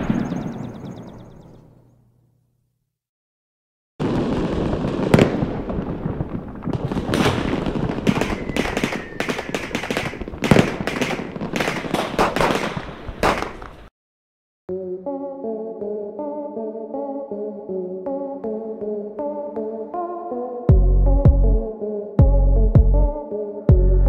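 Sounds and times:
fireworks crackling and banging: 4.0s - 13.9s
faint falling whistle: 8.1s - 9.4s.

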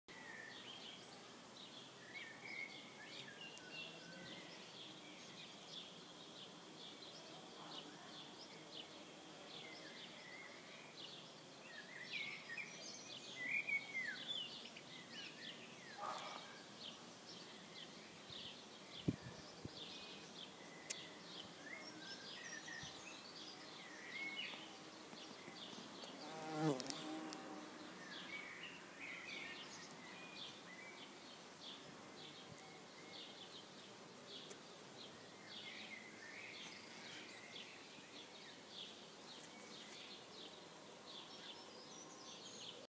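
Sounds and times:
small birds chirping: 0.1s - 42.9s
insect buzzing: 24.5s - 28.0s.

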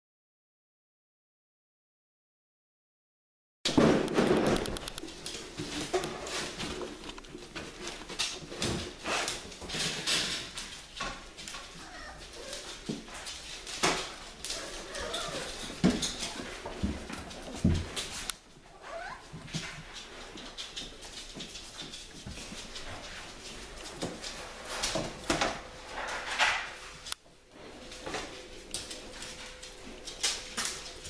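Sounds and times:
dog claws clicking on tile: 4.3s - 6.2s.

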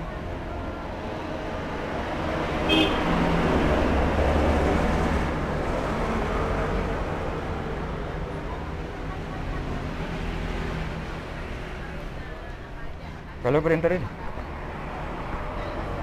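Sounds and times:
vehicle passing by: 0.3s - 12.4s.

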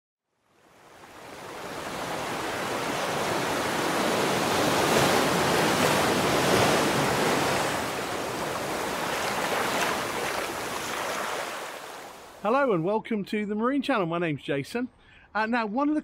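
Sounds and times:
waves washing: 0.6s - 12.5s.

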